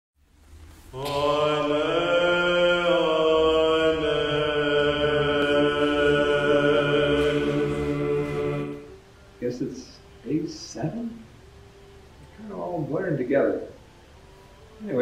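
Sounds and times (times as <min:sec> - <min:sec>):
slow chanted vocal music: 0:00.3 - 0:15.0
low drone note: 0:01.0 - 0:09.0.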